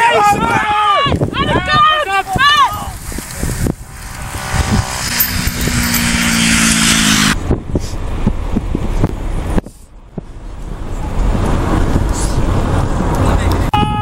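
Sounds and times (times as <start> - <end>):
wind rush on microphone: 0.0 - 14.0
vehicle engine running: 2.8 - 9.2.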